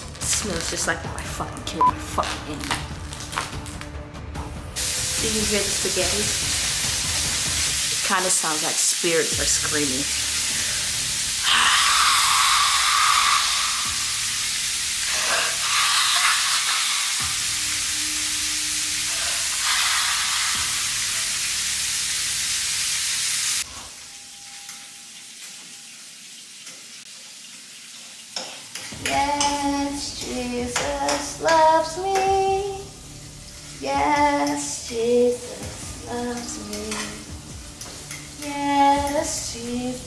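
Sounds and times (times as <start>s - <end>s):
meat sizzling in a frying pan: 4.8s - 40.0s
woman singing: 29.0s - 33.0s, 33.8s - 37.4s, 38.4s - 40.0s.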